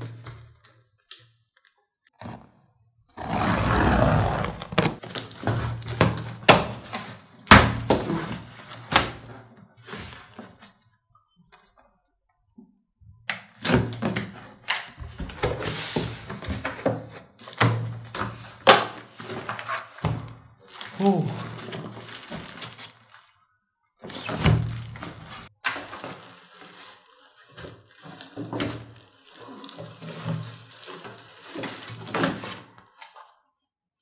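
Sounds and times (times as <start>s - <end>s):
tape tearing on cardboard box: 3.2s - 5.0s
box flaps scraping and thudding: 3.2s - 5.9s
plastic and paper rustling: 4.1s - 10.9s, 14.0s - 23.4s, 24.0s - 33.6s.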